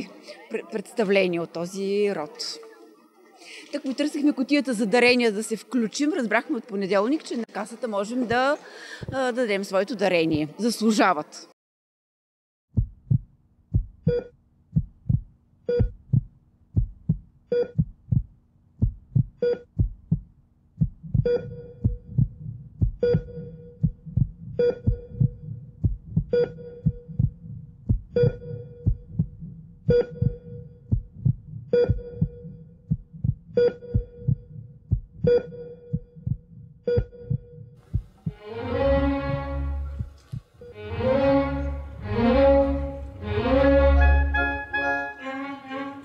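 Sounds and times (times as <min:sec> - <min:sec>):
low heartbeat-like thumps: 0:12.7 - 0:41.2.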